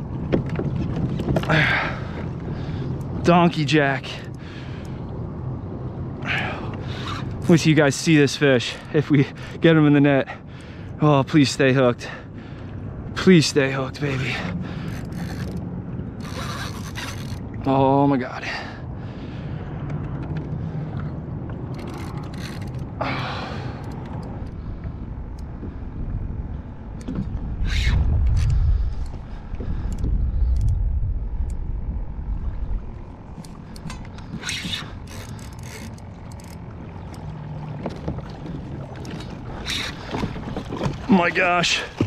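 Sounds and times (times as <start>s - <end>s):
low rumbling buffets: 0.0s - 42.0s
reel and rod clicks and rattles: 14.1s - 17.6s, 19.8s - 23.0s, 23.7s - 24.6s, 33.3s - 41.1s
fishing reel cranking: 14.8s - 15.6s, 16.2s - 17.4s, 21.7s - 22.8s, 33.8s - 36.6s.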